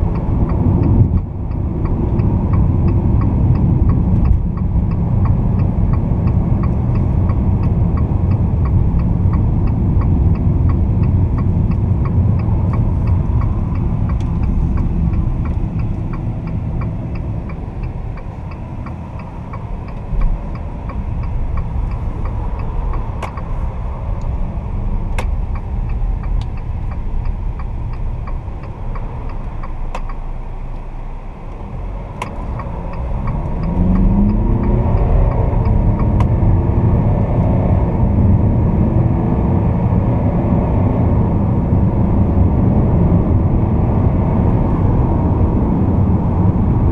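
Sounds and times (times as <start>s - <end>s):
faint regular ticking: 0.0s - 30.8s, 31.5s - 36.4s
car engine drone: 0.0s - 46.9s
road and tyre rumble: 0.0s - 46.9s.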